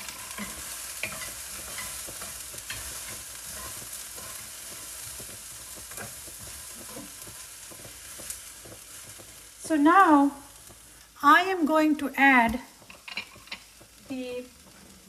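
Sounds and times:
utensil scraping pan: 0.0 - 9.4
beans sizzling in a pan: 0.0 - 15.0.

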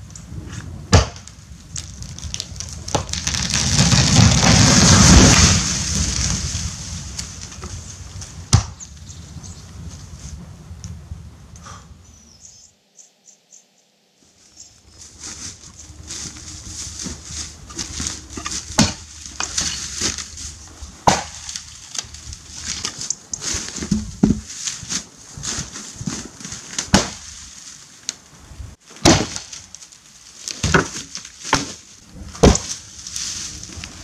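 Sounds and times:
dry branches crackling: 0.0 - 11.5, 14.2 - 34.0
axe striking wood: 0.9 - 1.2, 8.5 - 8.8, 17.8 - 20.3, 21.0 - 21.6, 26.9 - 27.2, 29.0 - 29.5, 30.6 - 31.8, 32.4 - 32.8.

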